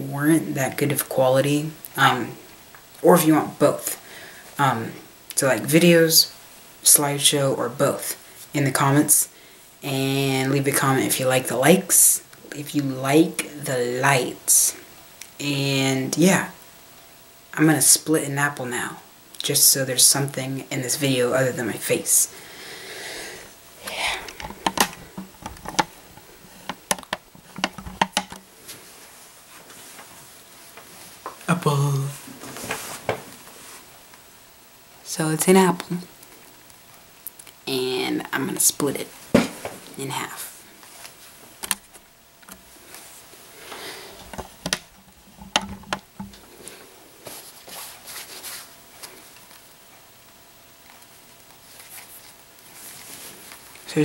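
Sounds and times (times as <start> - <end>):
camera and tripod clicks and knocks: 24.4 - 25.9, 26.6 - 28.5
hands rustling and rubbing apple: 47.2 - 49.6.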